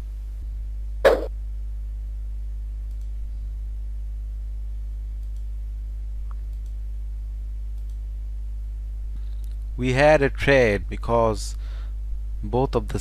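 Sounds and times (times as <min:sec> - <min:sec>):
low electrical hum: 0:00.0 - 0:13.0
computer mouse clicks: 0:06.4 - 0:06.8, 0:07.7 - 0:08.0.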